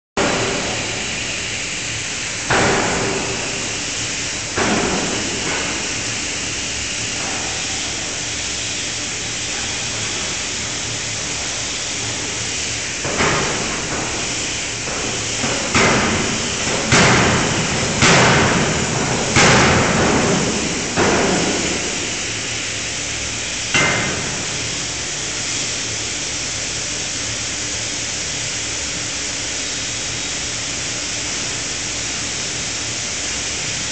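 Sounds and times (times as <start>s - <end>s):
loud hissing shop noise: 0.2s - 33.9s
forging hammer striking hot metal: 13.0s - 22.3s.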